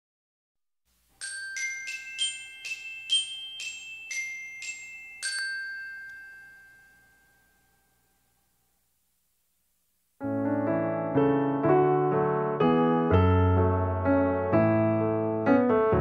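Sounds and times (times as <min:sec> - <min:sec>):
glockenspiel chimes jingle: 0:01.2 - 0:08.3.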